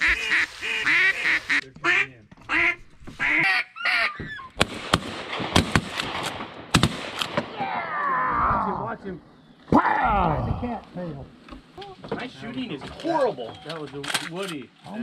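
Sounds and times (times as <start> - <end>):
duck call quacks: 0.0 - 4.2.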